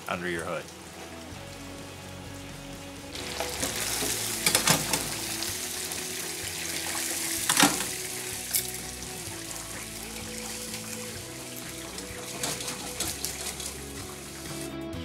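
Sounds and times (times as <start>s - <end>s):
chicken sizzling in deep fryer: 0.0s - 14.7s
wire fry baskets clanking: 3.3s - 5.2s, 7.5s - 8.7s, 11.8s - 13.9s.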